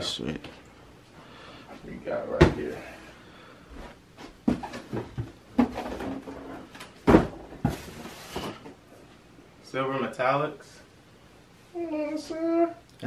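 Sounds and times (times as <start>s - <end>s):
cardboard boxes knocking: 4.4s - 8.6s.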